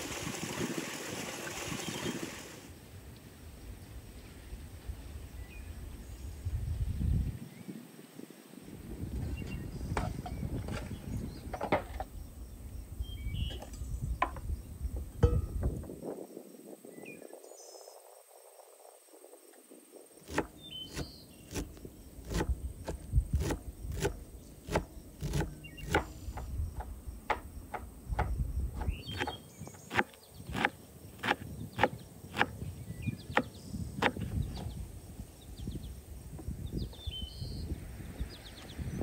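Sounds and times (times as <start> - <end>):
knife chopping on wooden board: 20.3 - 32.6, 33.3 - 34.3.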